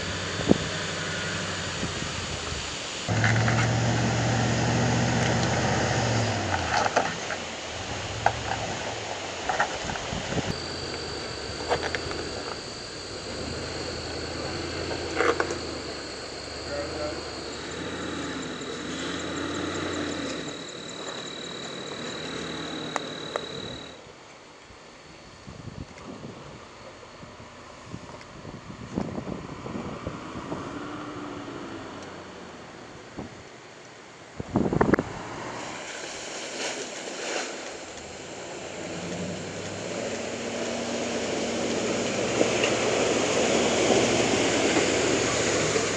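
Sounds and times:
truck engine running low: 0.0 - 24.0, 38.3 - 45.9
insect chirps: 0.0 - 27.9
insect drone: 0.0 - 45.9.

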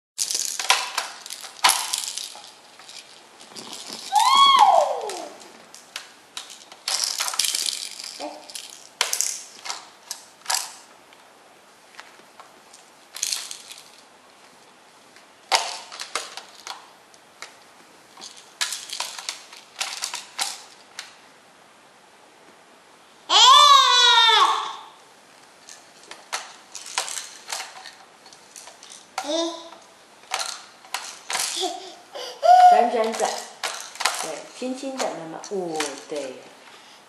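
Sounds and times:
toy blocks clattering on plastic: 0.2 - 10.9, 13.1 - 14.0, 15.5 - 17.6, 18.2 - 21.2, 25.6 - 36.4.

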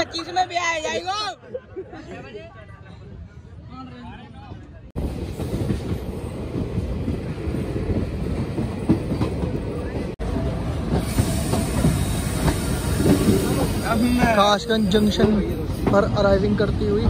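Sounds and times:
train coach rumbling: 4.3 - 17.0.

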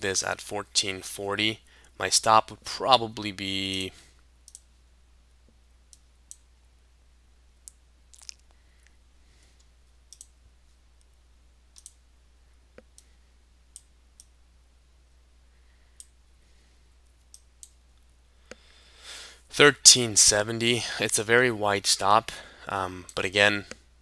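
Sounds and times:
low steady hum: 0.0 - 24.0
computer mouse clicks: 4.4 - 4.7, 9.6 - 10.4, 11.8 - 12.0.

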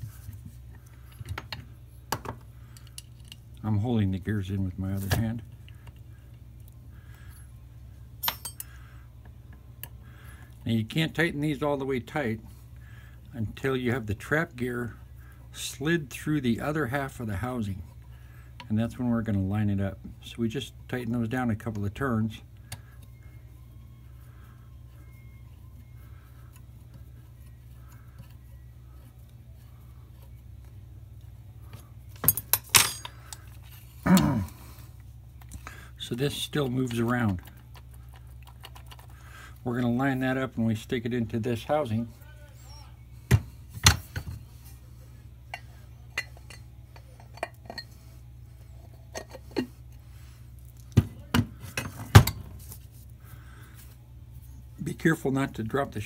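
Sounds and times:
steady low hum: 0.0 - 56.0
metal clinks: 8.2 - 8.8, 32.2 - 33.5.

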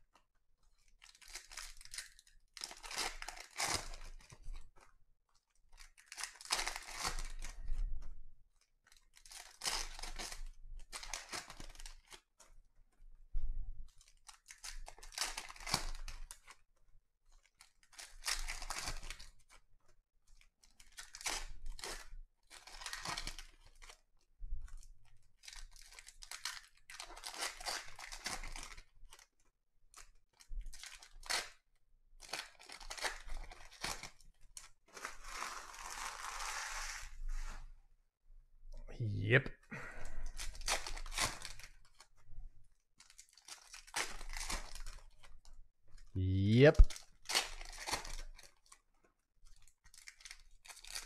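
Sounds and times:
foil wrappers tearing and crinkling: 1.0 - 4.3, 5.9 - 7.6, 20.8 - 24.0, 25.4 - 29.2, 32.2 - 34.2, 35.0 - 37.1, 40.4 - 42.0, 43.0 - 45.3, 46.8 - 48.8, 49.5 - 51.0.

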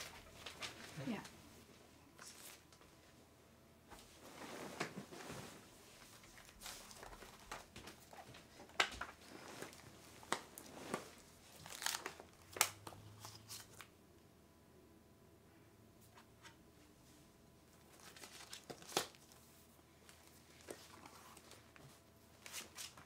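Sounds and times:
paper pages rustling: 0.0 - 1.3, 4.5 - 13.9, 17.9 - 19.4, 20.0 - 23.0.

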